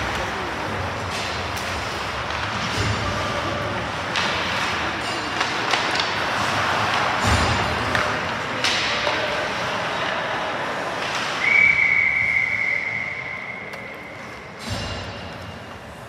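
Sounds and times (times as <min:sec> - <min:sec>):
crowd and rink noise: 0:00.0 - 0:16.0
referee's whistle blast: 0:11.4 - 0:13.9.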